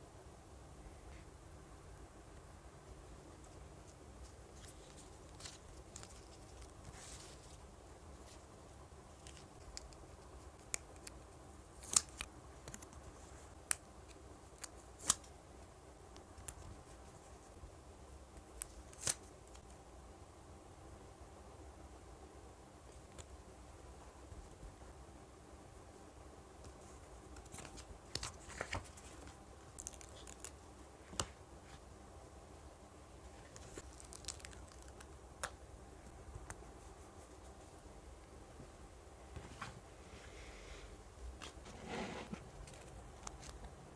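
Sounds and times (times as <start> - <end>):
paper stickers crinkling: 4.2 - 7.6, 27.3 - 30.6, 33.4 - 35.5.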